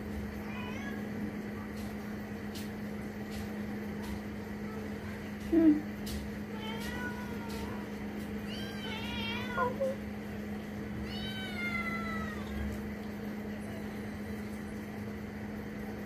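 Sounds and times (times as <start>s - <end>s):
cats meowing: 0.4s - 1.1s, 6.5s - 10.0s, 11.0s - 12.8s.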